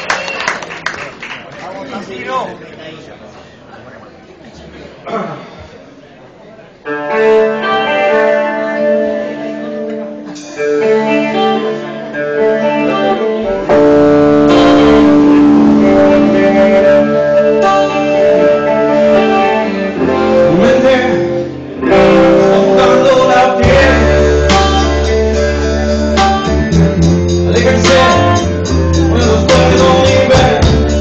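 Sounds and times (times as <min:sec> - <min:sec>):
electric guitar sparse notes: 0:06.8 - 0:31.0
rock band playing: 0:06.9 - 0:31.0.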